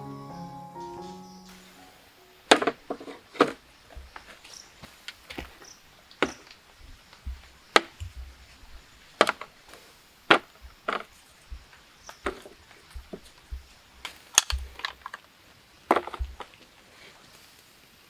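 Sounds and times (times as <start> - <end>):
wood cracking: 2.5 - 16.7
wood splintering ticks: 10.3 - 15.2.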